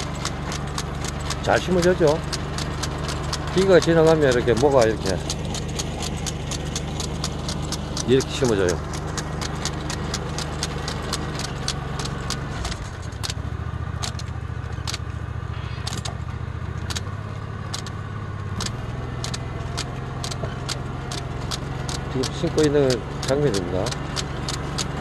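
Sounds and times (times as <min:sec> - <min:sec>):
regular machine clicking: 0:00.0 - 0:13.4, 0:14.0 - 0:15.1, 0:15.8 - 0:16.2, 0:16.8 - 0:17.1, 0:17.7 - 0:25.0
small engine hum: 0:00.0 - 0:25.0.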